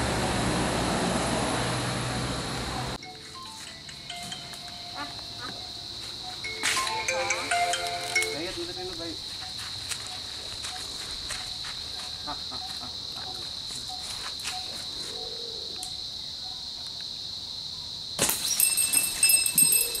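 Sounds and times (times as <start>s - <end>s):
high-pitched insect drone: 2.1s - 16.5s, 18.4s - 20.0s
small bell jingling: 6.4s - 8.9s, 18.2s - 20.0s.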